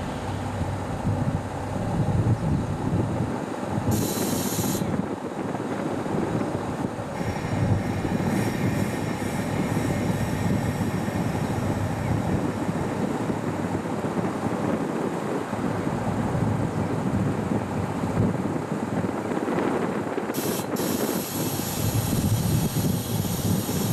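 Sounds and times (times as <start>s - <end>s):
steam locomotive low rumble: 0.0s - 23.9s
wind on microphone: 0.0s - 23.9s
sharp steam hiss: 3.9s - 4.9s, 7.2s - 13.1s, 20.3s - 23.9s.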